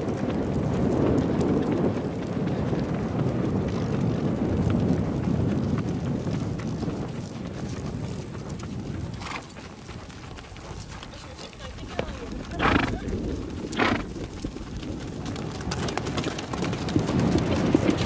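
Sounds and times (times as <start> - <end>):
hoofbeats of horses on grass: 0.0 - 18.0
low rumbling noise: 12.1 - 15.8.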